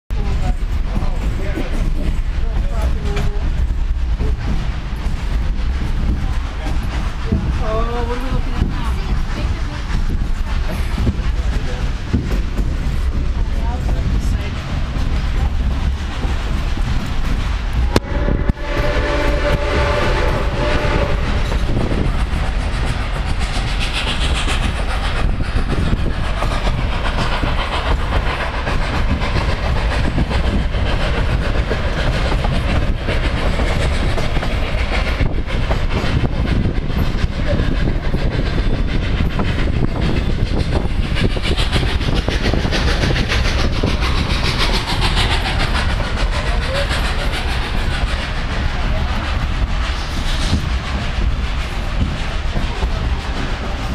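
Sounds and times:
train cars rumbling over rails: 0.1s - 53.9s
steam whistle blowing: 17.9s - 21.4s.

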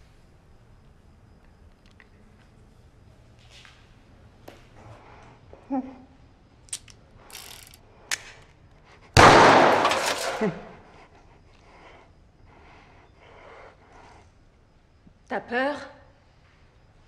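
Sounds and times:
loud crash: 9.2s - 10.5s.

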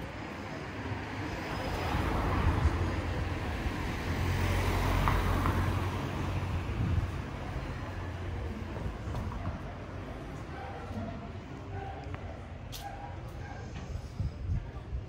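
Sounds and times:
car passing by: 1.4s - 8.5s.

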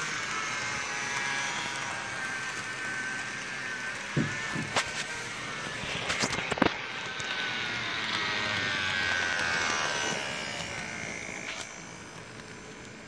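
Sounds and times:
model train motor whining: 0.0s - 13.0s.

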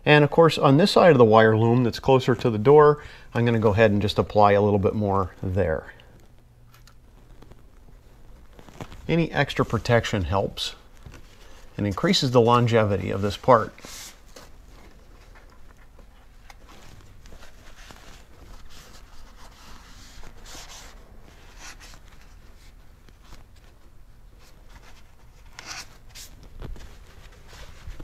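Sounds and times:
paper towel rustling and rubbing: 0.3s - 28.0s.

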